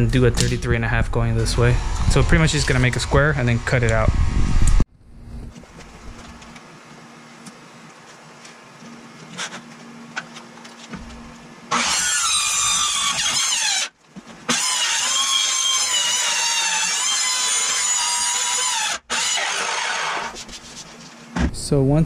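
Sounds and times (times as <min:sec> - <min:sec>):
circular saw cutting: 0:01.3 - 0:04.2, 0:11.7 - 0:13.9, 0:14.5 - 0:20.4.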